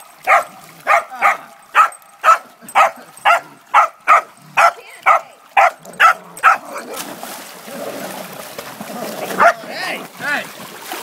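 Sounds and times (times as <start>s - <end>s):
dog barking: 0.3s - 6.7s, 9.4s - 9.6s.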